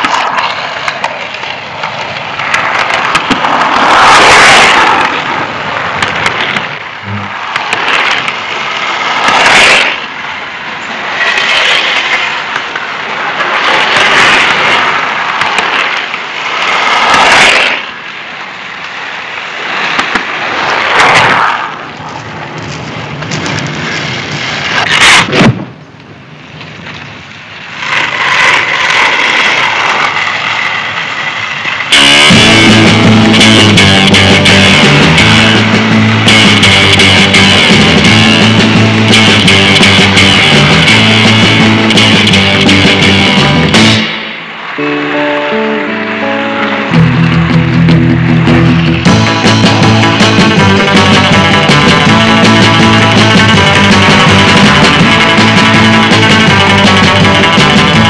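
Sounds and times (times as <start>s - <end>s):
skateboard clacking on ground: 0.0s - 18.0s, 18.8s - 35.6s
skateboards rolling on pavement: 0.0s - 58.0s.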